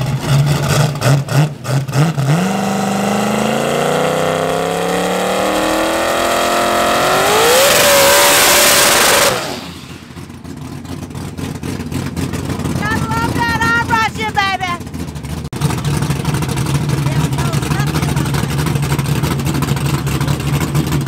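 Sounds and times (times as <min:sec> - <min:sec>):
spinning tires hissing: 0:00.0 - 0:12.8
car engine revving: 0:00.0 - 0:21.0.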